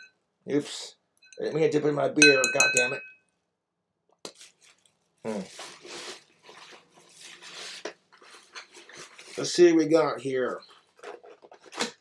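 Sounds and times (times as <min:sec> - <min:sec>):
plastic bag rustling: 0:04.4 - 0:12.0.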